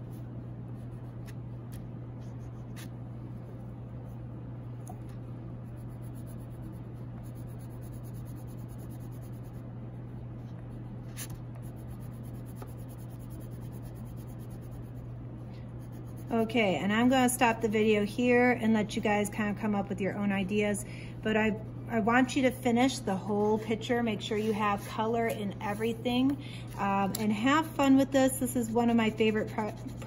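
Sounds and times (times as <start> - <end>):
steady low hum: 0.0 - 30.0
crayon scribbling on paper: 5.7 - 9.6, 11.2 - 15.1, 15.7 - 17.3, 29.1 - 30.0.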